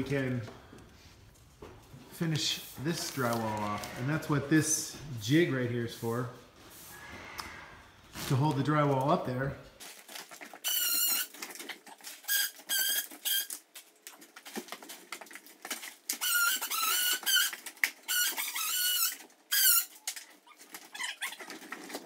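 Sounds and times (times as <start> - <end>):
small animal squeaking: 18.1 - 21.5.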